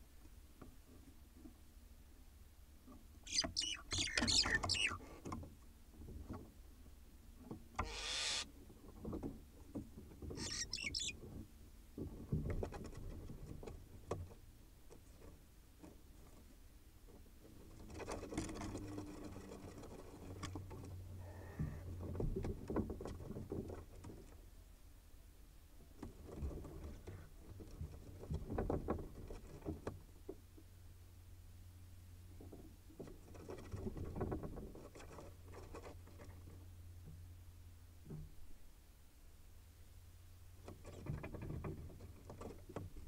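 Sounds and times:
owl raspy hissing calls: 0:03.3 - 0:05.0, 0:07.8 - 0:08.5, 0:10.4 - 0:11.1
owls scraping in straw: 0:03.3 - 0:05.0, 0:07.8 - 0:08.5, 0:10.4 - 0:11.2.

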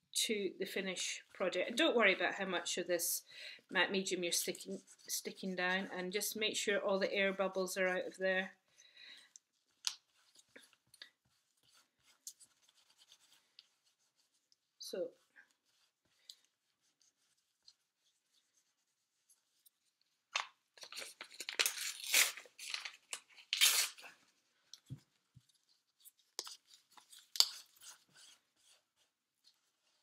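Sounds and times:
paper tearing: 0:20.8 - 0:24.1.

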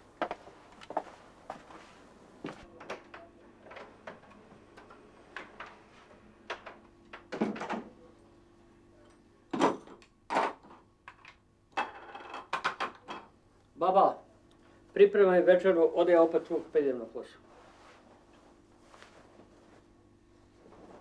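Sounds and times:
footsteps: 0:00.2 - 0:02.7.

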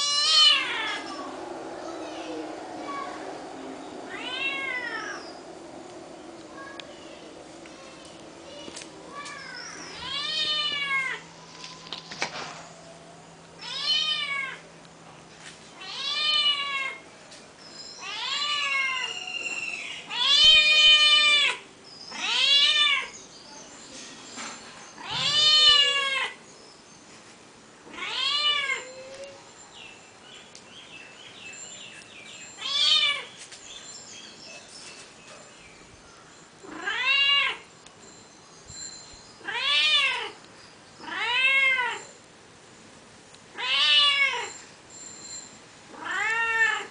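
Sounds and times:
cat meowing: 0:00.0 - 0:01.2, 0:04.1 - 0:05.2, 0:09.9 - 0:11.2, 0:13.6 - 0:14.6, 0:18.0 - 0:23.1, 0:25.0 - 0:26.4, 0:27.9 - 0:29.4, 0:36.7 - 0:37.6, 0:39.4 - 0:40.4, 0:41.0 - 0:42.1, 0:43.5 - 0:44.6, 0:45.9 - 0:46.9.

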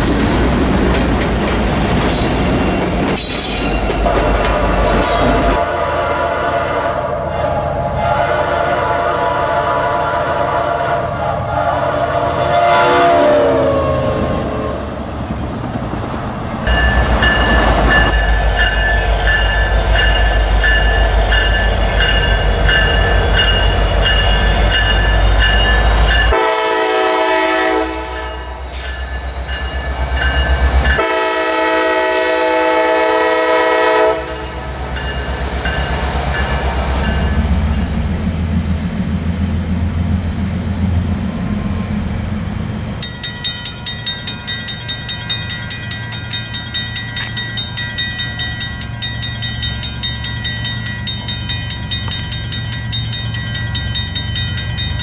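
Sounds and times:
wheels clicking over rail joints: 0:00.0 - 0:05.6, 0:43.0 - 0:55.0
freight train rumbling past: 0:00.0 - 0:55.0
locomotive horn: 0:05.0 - 0:15.0, 0:26.2 - 0:28.9, 0:31.0 - 0:34.6
ringing beat: 0:16.7 - 0:26.3, 0:43.0 - 0:55.0.

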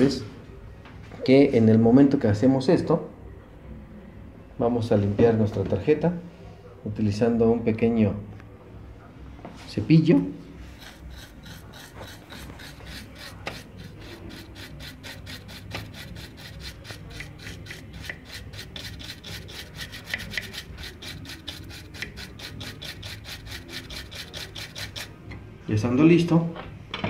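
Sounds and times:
brush scrubbing circuit board: 0:10.7 - 0:25.2.

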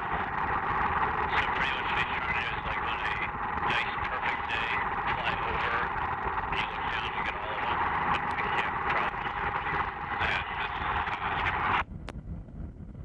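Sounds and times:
radio static hiss: 0:00.0 - 0:11.8
low rumble: 0:00.0 - 0:13.0.

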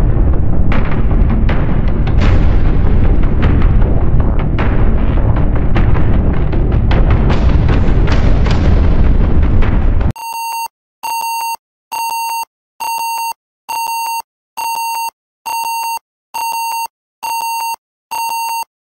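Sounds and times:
loud low rumbling: 0:00.0 - 0:10.1.

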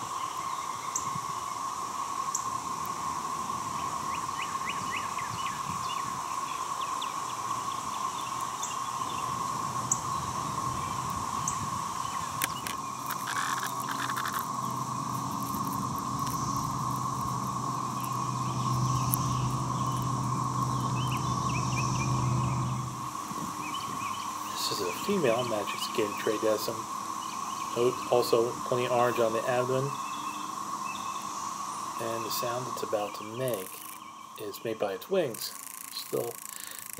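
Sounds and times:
cicadas chorusing: 0:00.0 - 0:36.9
low hum: 0:07.6 - 0:34.4
bird chirps: 0:09.9 - 0:23.0.

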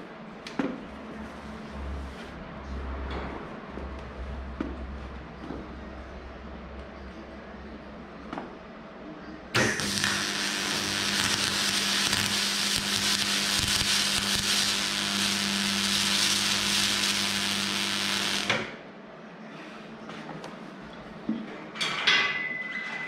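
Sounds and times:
constant low hum: 0:00.0 - 0:21.6
arc welder hissing and buzzing: 0:09.6 - 0:18.8.

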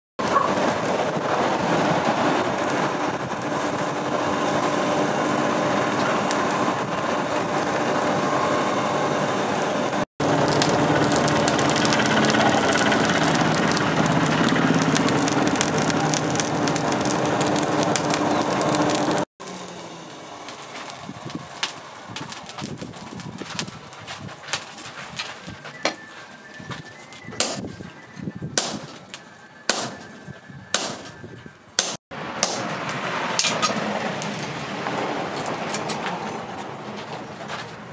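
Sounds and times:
forge fire roaring and crackling: 0:00.2 - 0:37.9.

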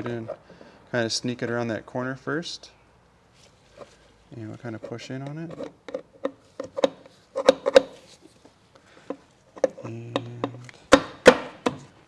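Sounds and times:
metal cover clicking and knocking: 0:05.2 - 0:07.9.

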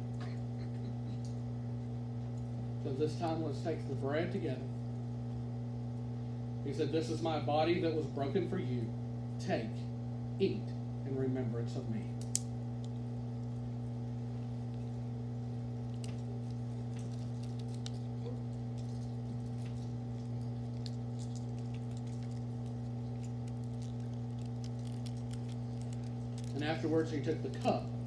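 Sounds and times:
low electrical hum: 0:00.0 - 0:28.0
clicks and rustles of handling: 0:15.8 - 0:28.0.

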